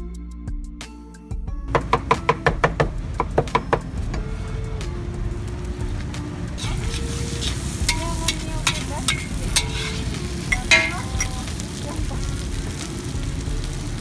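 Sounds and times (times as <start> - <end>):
frying sizzle: 1.8 - 14.0
metal spatula scraping wok: 6.6 - 13.1.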